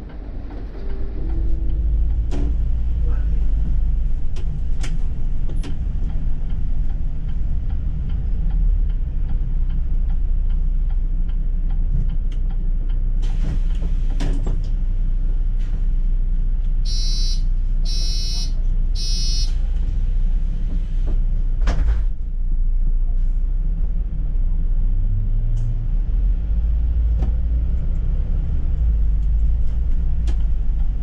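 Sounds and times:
bus engine rumble: 0.0s - 31.0s
electronic beeper: 16.9s - 19.5s.

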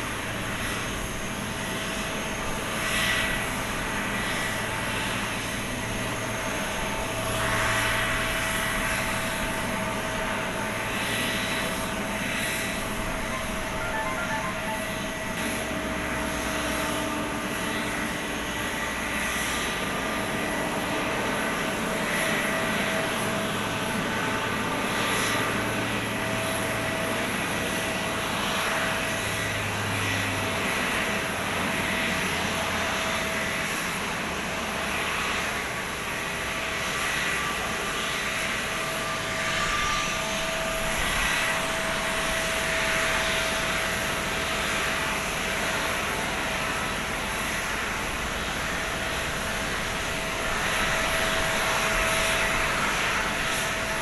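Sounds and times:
jet engines running: 0.0s - 54.0s
thin high whine: 11.9s - 16.3s.

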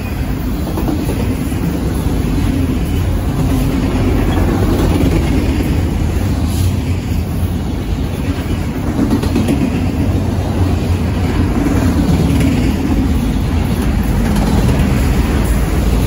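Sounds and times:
freight train wheels rumbling on rails: 0.0s - 16.0s.

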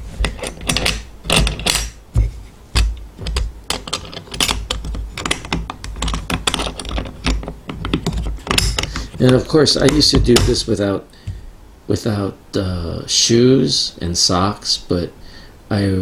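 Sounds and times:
metal latch clicking: 0.2s - 2.0s, 2.8s - 10.6s.

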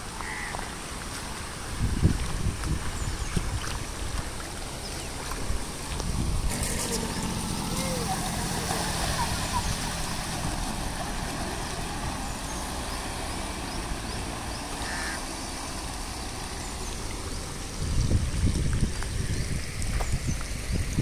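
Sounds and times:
steady hiss of water: 0.0s - 21.0s
wheels splashing through water: 0.0s - 21.0s
motorcycle engine running: 6.4s - 10.3s.

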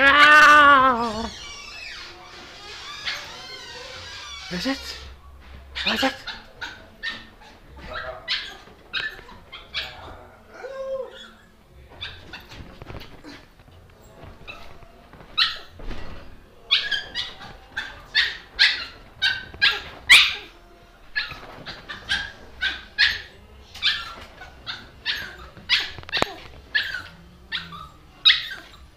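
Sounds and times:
small dog yapping: 5.8s - 10.0s, 16.7s - 20.5s, 21.2s - 28.8s.

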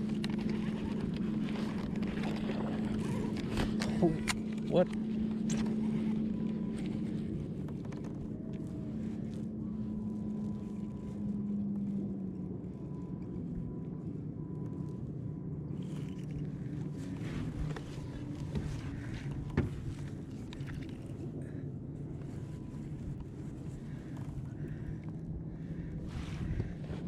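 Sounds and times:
boat motor humming: 0.0s - 27.0s
faint high whine: 0.0s - 27.0s.

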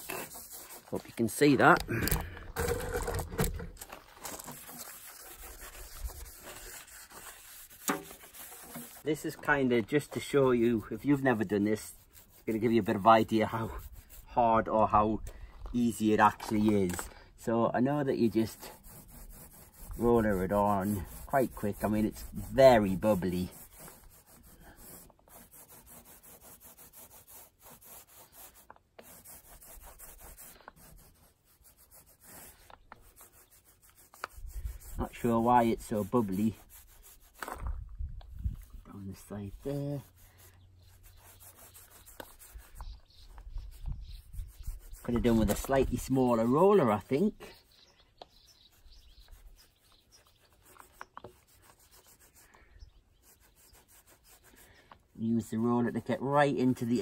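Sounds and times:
paint roller rubbing: 0.0s - 14.4s, 18.0s - 37.6s, 38.5s - 47.7s, 48.7s - 52.5s, 53.1s - 54.7s.

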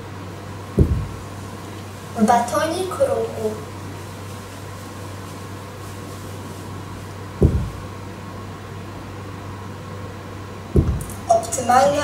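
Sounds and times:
low electrical hum: 0.0s - 12.0s
dull thump: 0.8s - 1.2s, 7.4s - 7.9s, 10.7s - 11.2s.

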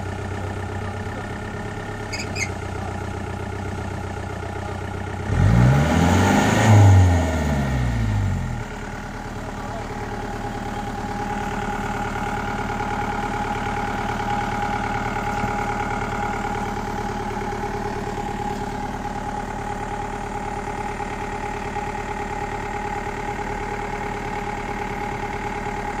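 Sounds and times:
jeep engine idling: 0.0s - 26.0s.

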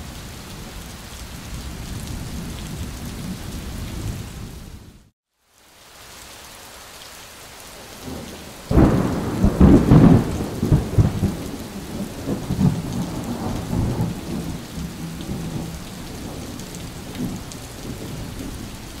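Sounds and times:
steady rain: 0.0s - 19.0s
thunder clap and rumble: 8.7s - 18.8s.

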